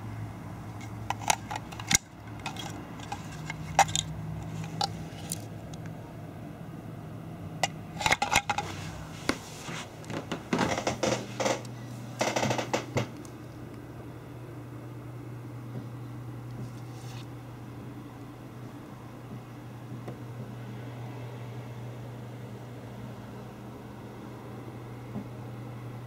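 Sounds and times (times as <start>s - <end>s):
plastic parts clicking and clattering: 0.8s - 5.5s, 7.6s - 8.8s.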